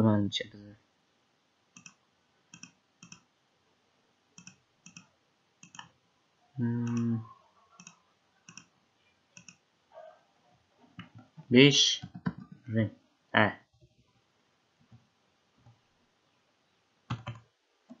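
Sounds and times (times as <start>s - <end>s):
computer mouse clicks: 1.8s - 3.3s, 4.4s - 5.9s, 6.8s - 7.2s, 7.8s - 8.7s, 9.4s - 9.6s, 17.1s - 18.0s
person humming: 6.6s - 7.3s.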